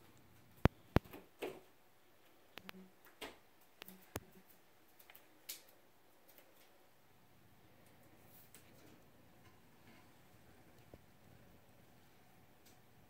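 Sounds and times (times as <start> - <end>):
light clicks and taps: 2.5 - 6.8.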